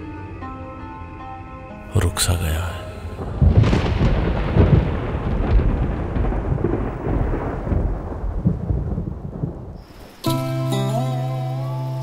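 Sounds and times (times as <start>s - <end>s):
rain hiss: 2.0s - 12.0s
thunder crack: 3.0s - 10.1s
rolling thunder rumbles: 3.0s - 10.2s.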